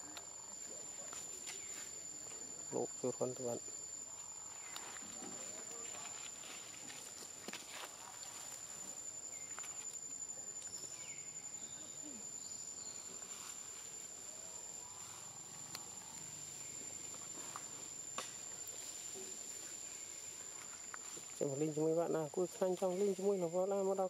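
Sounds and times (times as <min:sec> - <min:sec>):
insect drone: 0:00.0 - 0:24.0
crackles in dry leaf litter: 0:04.2 - 0:11.1, 0:13.1 - 0:24.0.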